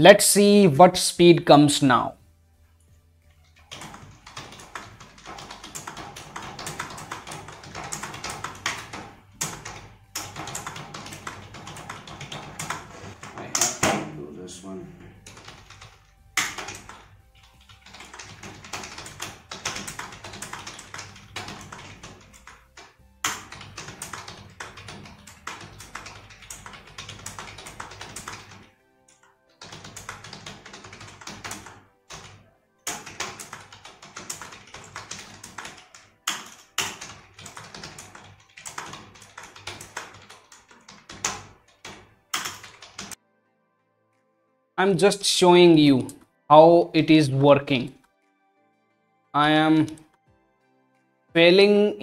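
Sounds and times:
faint music: 0.0s - 52.0s
rapid keyboard typing: 3.4s - 14.2s, 15.2s - 43.2s.

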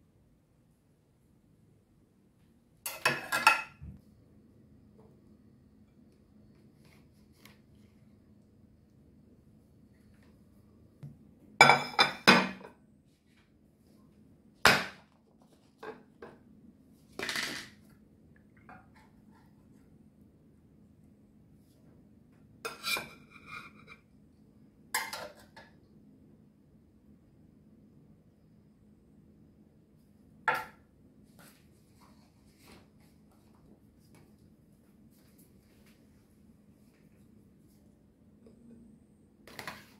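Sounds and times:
dishes clinking: 2.9s - 3.9s, 11.6s - 12.7s, 25.0s - 25.6s.

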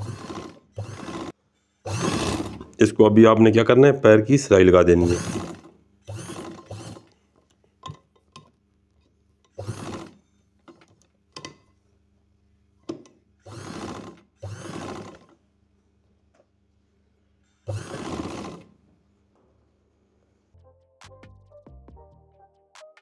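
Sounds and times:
sewing machine stitching: 0.0s - 2.8s, 4.9s - 7.2s, 9.5s - 11.6s, 12.9s - 15.4s, 17.6s - 18.8s.

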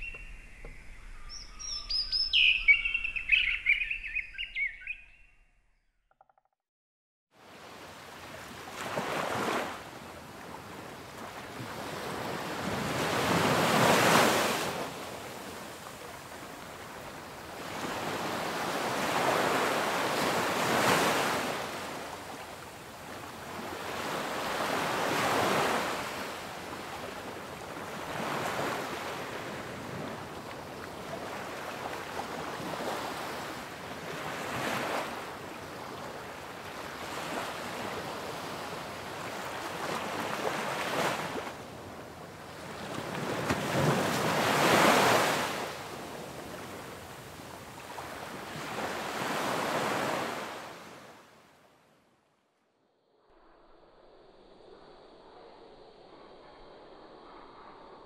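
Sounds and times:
ocean waves breaking on beach: 7.4s - 51.5s.

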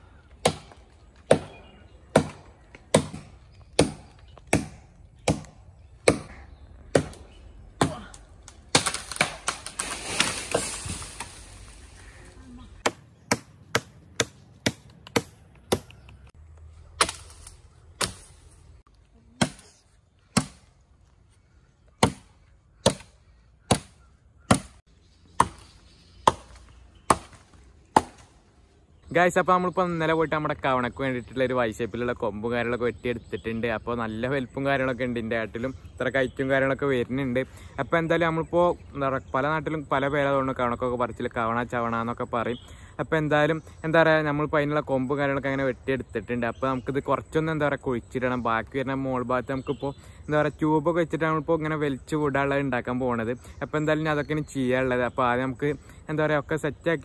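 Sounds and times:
blade chopping tree branches: 0.4s - 11.8s, 12.8s - 16.0s, 16.9s - 18.4s, 19.4s - 20.7s, 22.0s - 24.8s, 25.4s - 28.4s.

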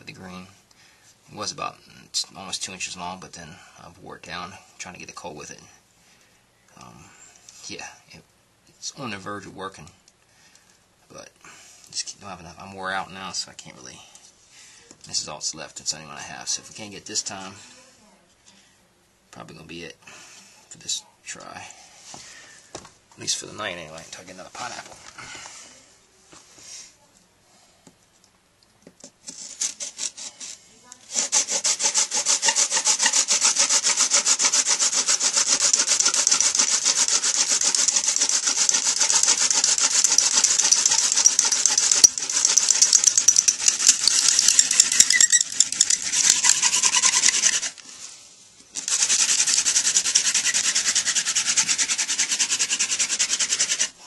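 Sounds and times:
wooden spindle rubbing: 29.2s - 47.9s, 48.7s - 54.0s.

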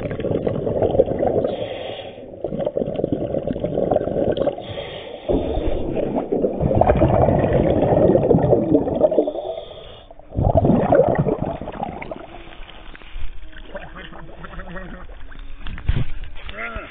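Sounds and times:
water splashing: 0.0s - 16.6s
underwater bubbling: 0.0s - 16.9s
water rushing past camera: 5.3s - 9.6s, 10.3s - 16.9s.

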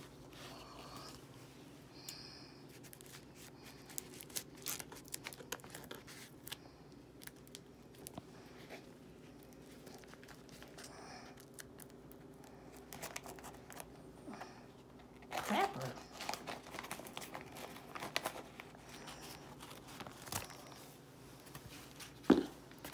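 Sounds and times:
newspaper crinkling and tearing: 2.7s - 8.2s, 9.3s - 14.0s, 15.2s - 22.9s.

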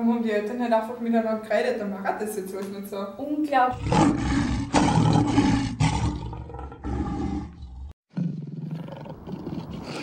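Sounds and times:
lion roaring: 3.8s - 10.0s.

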